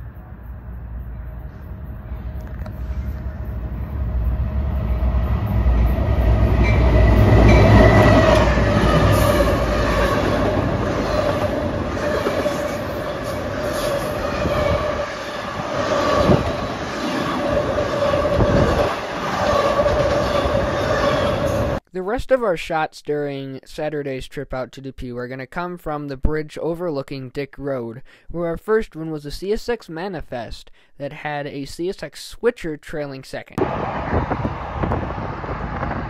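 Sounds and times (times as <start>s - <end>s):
freight train passing: 0.0s - 21.8s, 33.6s - 36.0s
wind buffeting microphone: 5.3s - 21.8s, 33.6s - 36.0s.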